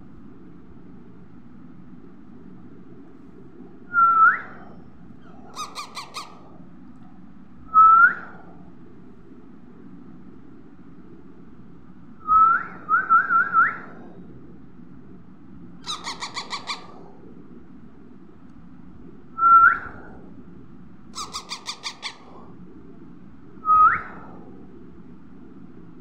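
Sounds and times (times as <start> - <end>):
baby parakeets squawking: 5.6 - 6.4, 15.8 - 16.9, 21.2 - 22.3.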